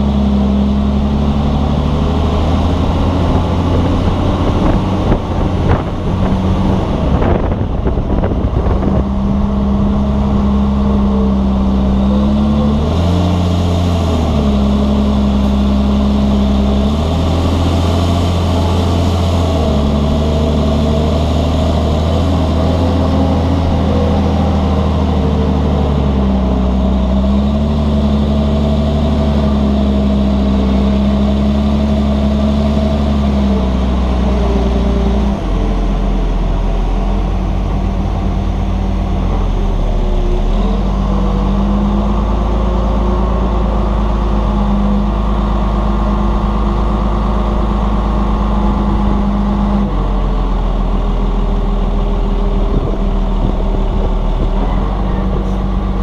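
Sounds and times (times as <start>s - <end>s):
dump truck diesel engine running: 0.0s - 56.0s.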